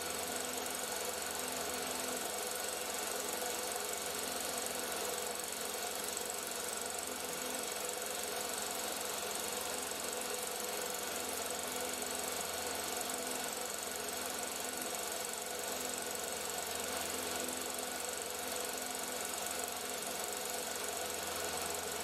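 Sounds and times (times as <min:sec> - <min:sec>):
film projector whirring: 0:00.0 - 0:22.0.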